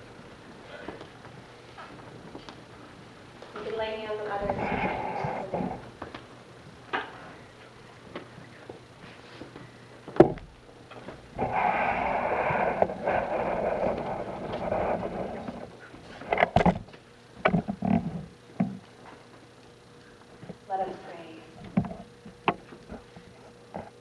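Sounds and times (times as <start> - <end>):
crowd rustling and shuffling: 0.0 - 10.2, 10.8 - 17.0.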